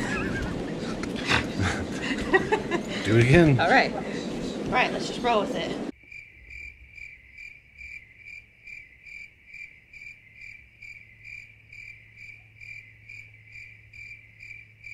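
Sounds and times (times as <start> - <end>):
cricket chirping: 5.9 - 14.9.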